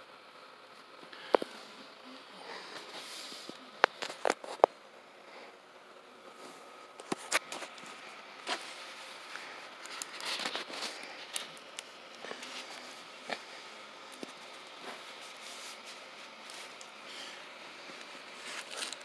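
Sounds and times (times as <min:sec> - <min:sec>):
foil balloon crinkling: 0:07.0 - 0:19.0.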